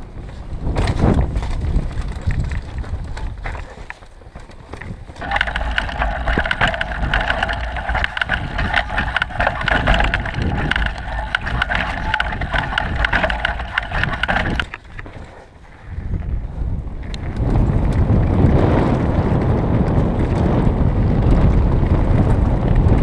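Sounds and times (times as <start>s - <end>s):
wind rumble on microphone: 0.0s - 4.0s, 4.6s - 23.0s
bike rattling over rocks: 0.7s - 15.9s.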